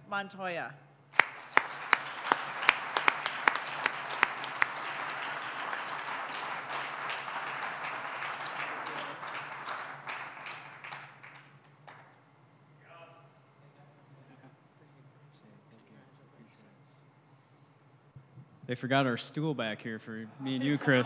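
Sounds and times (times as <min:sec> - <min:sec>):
audience applauding: 0:01.1 - 0:12.2
close sharp hand claps: 0:01.1 - 0:12.2.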